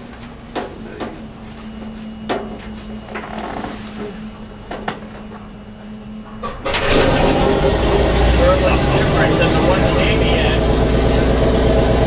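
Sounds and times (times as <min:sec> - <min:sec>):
steady hum: 0:00.0 - 0:12.0
engine cranking: 0:06.4 - 0:12.0.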